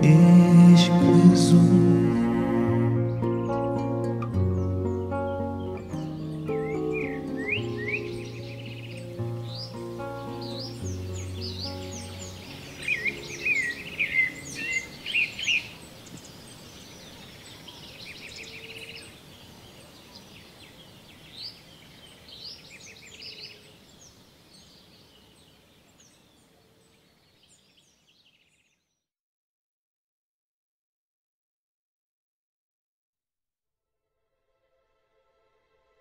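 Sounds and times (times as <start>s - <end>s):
background music: 0.0s - 15.2s
small birds chirping: 0.0s - 29.0s.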